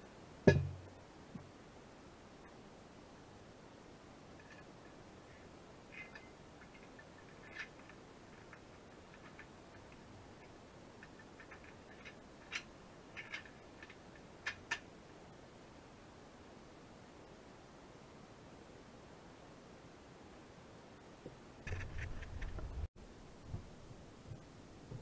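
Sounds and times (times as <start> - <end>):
steel parts clicking: 5.3 - 14.9.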